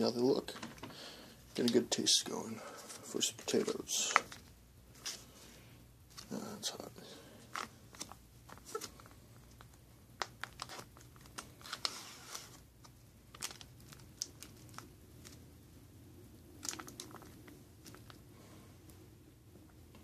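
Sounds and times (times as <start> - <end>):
foil pouch crinkling: 7.4 - 15.4, 16.6 - 18.2.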